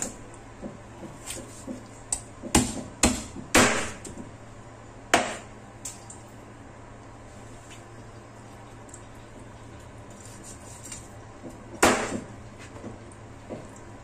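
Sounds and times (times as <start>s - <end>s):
cleaver chopping on cutting board: 2.4s - 4.0s.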